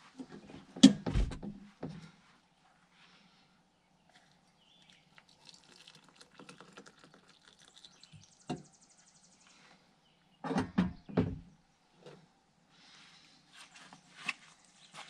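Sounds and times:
hot water pouring into mug: 4.2s - 8.4s.

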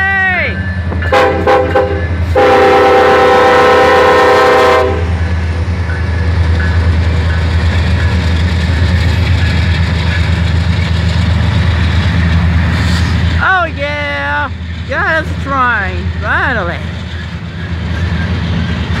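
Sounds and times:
freight train running past: 0.0s - 19.0s
locomotive air horn blast: 1.1s - 5.2s.

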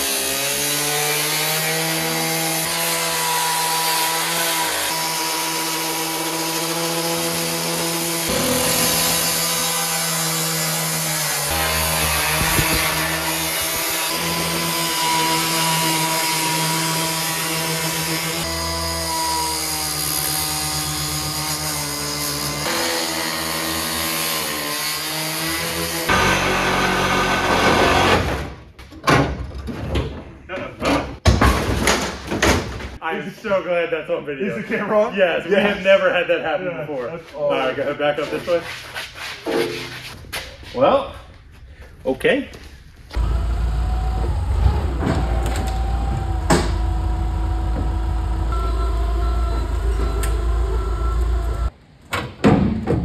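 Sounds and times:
power tool cutting sheet metal: 0.0s - 28.4s, 43.1s - 51.7s.

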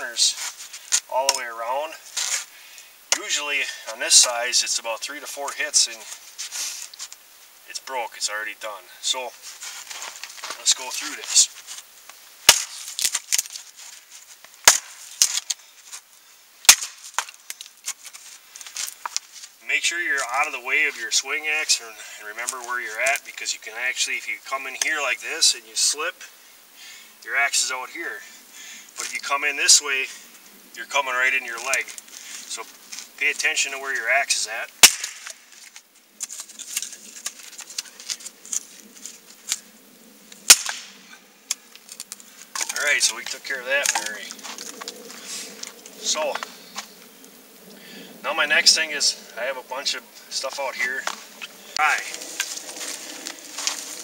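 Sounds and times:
axe chopping wood: 12.4s - 13.5s, 14.6s - 15.5s, 16.7s - 17.4s, 34.8s - 35.3s, 40.5s - 40.9s
light ticks and crackles: 17.0s - 20.4s, 34.8s - 39.7s, 41.4s - 47.7s.

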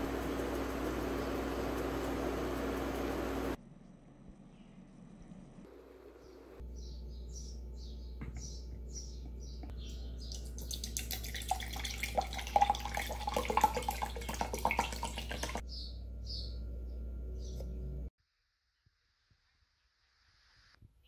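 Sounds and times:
low steady hum: 0.0s - 18.1s
bird chirping: 6.1s - 11.0s, 15.3s - 17.8s
juice poured into a glass: 10.4s - 15.6s.

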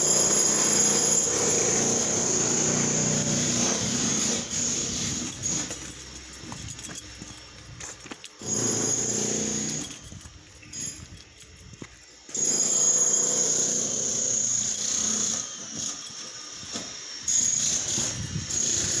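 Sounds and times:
motor running with high whine: 0.0s - 19.0s.

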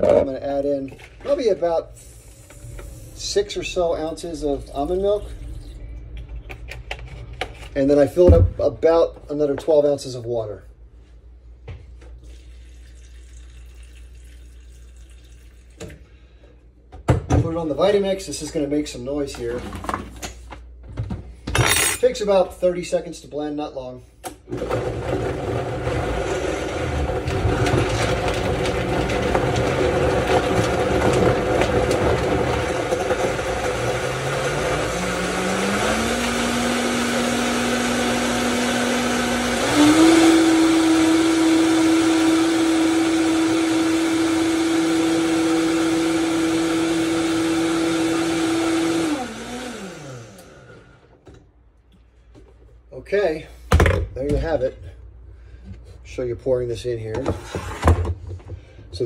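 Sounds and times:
blender motor: 24.5s - 51.1s.

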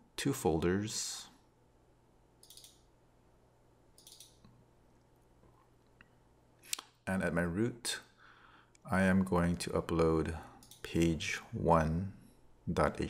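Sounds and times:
computer mouse clicking: 2.4s - 2.9s, 4.0s - 4.6s, 10.6s - 11.1s.

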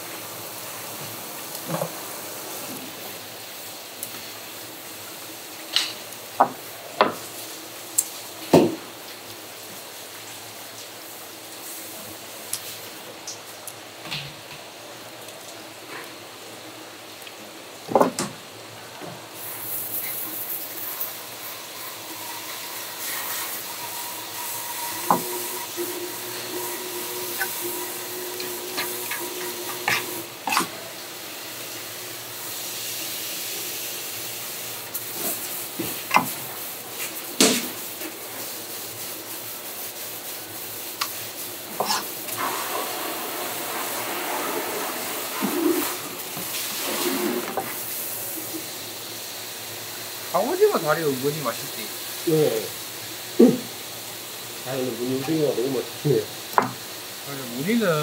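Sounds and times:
running water hiss: 0.0s - 58.0s.

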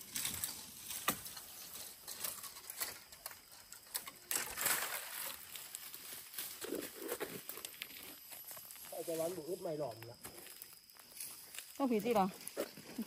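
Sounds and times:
footsteps crunching on dry leaves: 4.3s - 13.0s.

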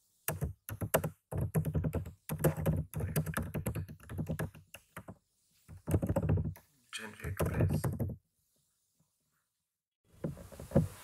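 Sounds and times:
typing on computer keyboard: 0.3s - 5.2s, 5.8s - 6.6s, 7.2s - 8.2s.

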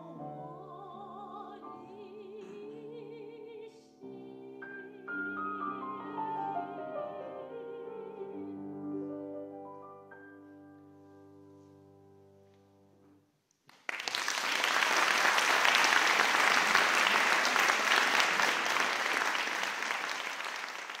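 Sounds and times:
audience applauding: 13.7s - 21.0s.

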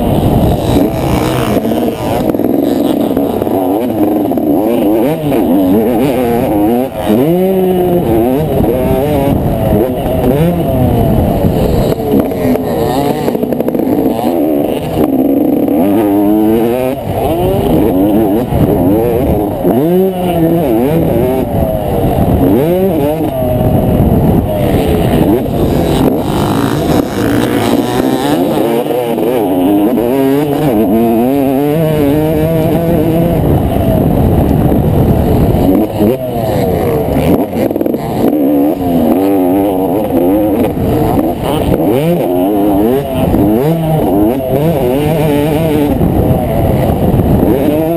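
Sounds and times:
motocross bike engine revving: 0.0s - 47.9s.

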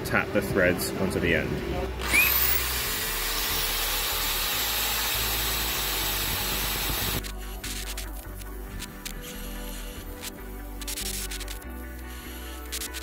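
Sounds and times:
angle grinder cutting metal: 2.0s - 7.2s.

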